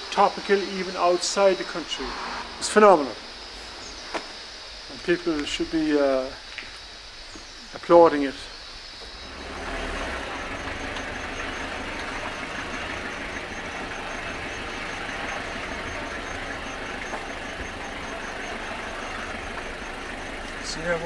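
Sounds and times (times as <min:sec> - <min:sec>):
even hiss: 0:00.0 - 0:21.0
vehicle engine running: 0:09.1 - 0:21.0.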